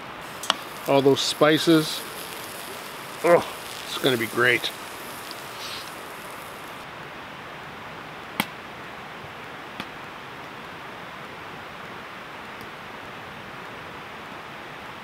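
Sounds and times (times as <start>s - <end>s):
wood fire hissing: 0.0s - 6.9s
burning wood popping: 0.2s - 6.9s.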